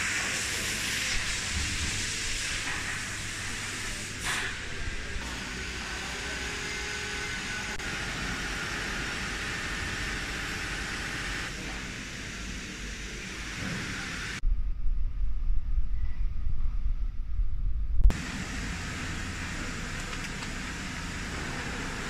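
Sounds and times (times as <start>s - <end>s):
machine hall hiss: 0.0s - 14.4s
low rumble: 14.4s - 18.2s.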